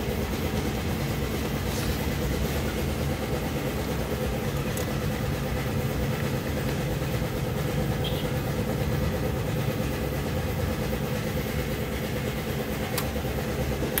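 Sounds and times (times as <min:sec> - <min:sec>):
engine idling: 0:00.0 - 0:14.0.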